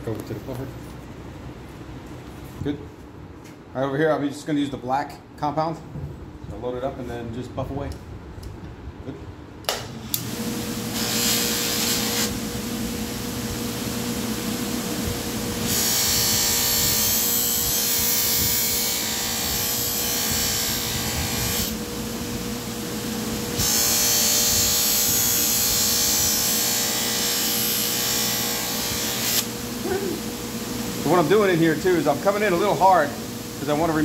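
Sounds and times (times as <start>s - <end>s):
electric buffer humming: 9.7s - 34.0s.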